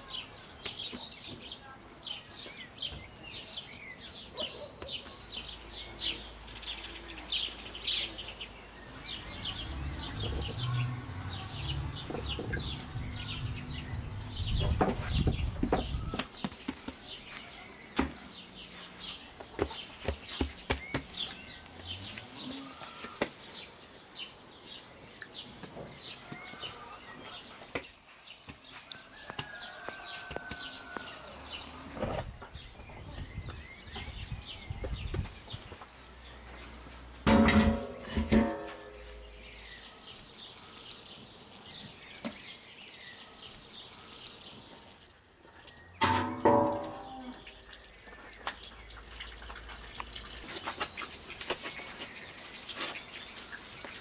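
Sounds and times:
birds chirping: 0.0 - 54.0
low buffeting rumble: 9.6 - 16.1
sharp taps and knocks: 19.4 - 21.4, 27.7 - 31.1.

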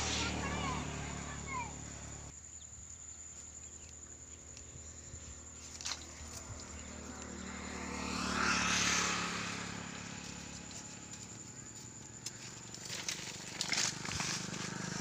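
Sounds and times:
faint low engine hum: 0.0 - 15.0.

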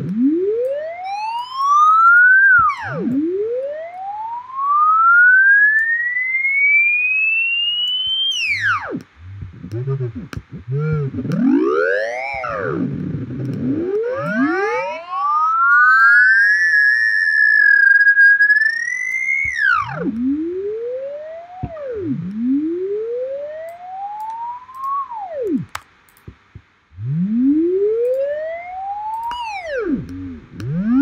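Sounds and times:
clicks: 0.0 - 3.3, 7.8 - 14.9, 18.5 - 20.4, 21.5 - 22.4, 23.6 - 26.7, 28.0 - 28.4, 29.0 - 31.0
synthesized sine tone swooping: 0.0 - 25.8, 26.9 - 31.0.

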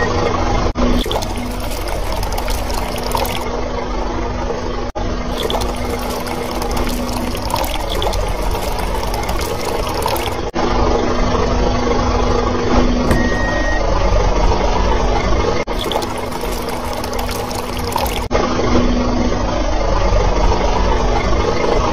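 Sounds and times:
water pouring and splashing: 0.8 - 3.6, 5.2 - 10.6, 15.6 - 18.3.

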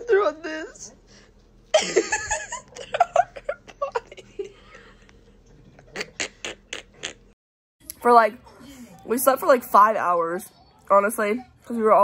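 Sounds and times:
young women laughing: 1.7 - 4.9.

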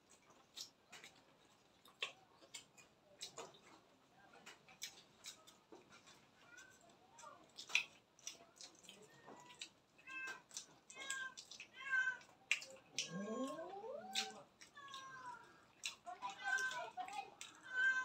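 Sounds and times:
people eating with hands: 0.0 - 18.0
cat meowing: 13.0 - 15.1.

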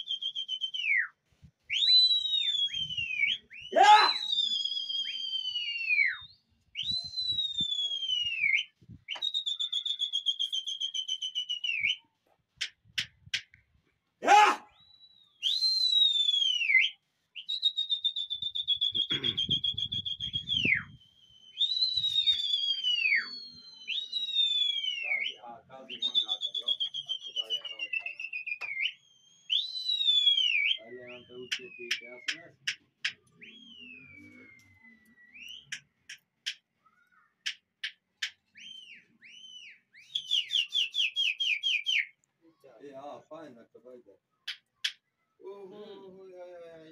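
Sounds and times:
person whistling shrilly: 0.0 - 12.1, 14.2 - 32.5, 33.4 - 35.8, 38.6 - 42.2.

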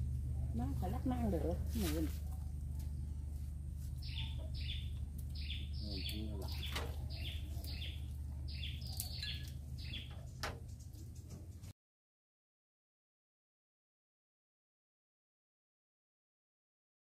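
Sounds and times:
steady low hum: 0.0 - 11.7
small bird chirping: 4.0 - 10.4.

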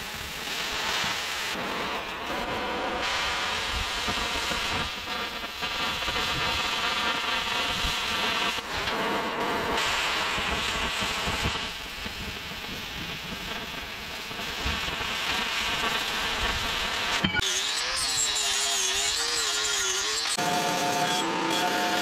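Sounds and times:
cutting torch hissing: 0.0 - 22.0
angle grinder whining: 17.1 - 22.0.

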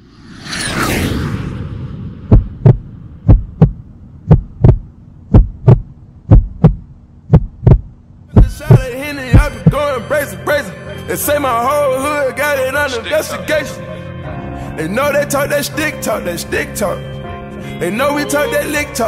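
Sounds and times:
whooshing swell: 0.0 - 3.2
deep paired drum thumps: 2.3 - 9.8
low steady hum: 2.3 - 11.1.

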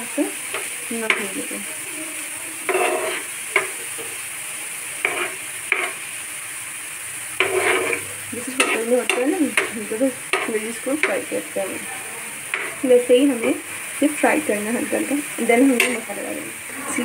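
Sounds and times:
vegetables sizzling in oil: 0.0 - 17.0
spoon scraping frying pan: 0.4 - 1.5, 2.6 - 4.2, 4.9 - 6.2, 7.3 - 13.9, 14.9 - 16.2.

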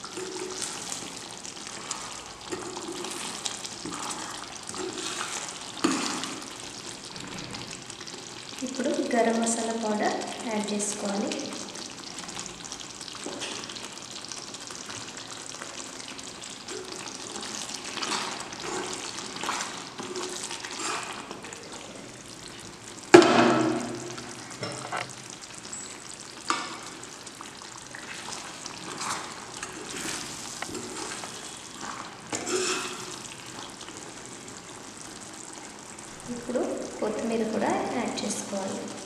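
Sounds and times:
gravy bubbling and sizzling in pot: 0.0 - 39.0
spoon stirring and scraping: 28.3 - 33.4.

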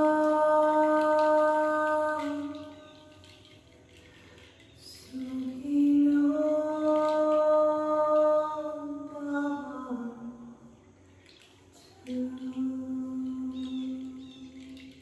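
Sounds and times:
woman singing long held note: 0.0 - 3.0, 4.8 - 10.6, 11.8 - 14.7.

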